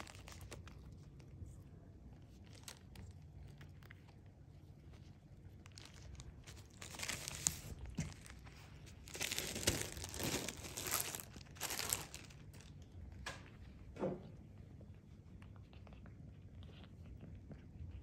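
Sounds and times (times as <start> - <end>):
plastic bag crinkling: 0.0 - 1.0, 2.4 - 3.9, 5.6 - 12.8.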